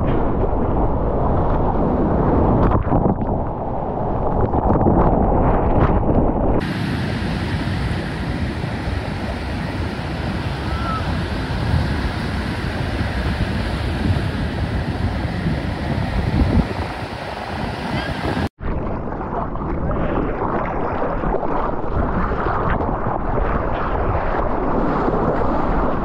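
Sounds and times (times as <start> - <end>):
muffled churning water: 0.0 - 26.0
wind on microphone: 0.0 - 26.0
surf breaking on beach: 6.6 - 26.0.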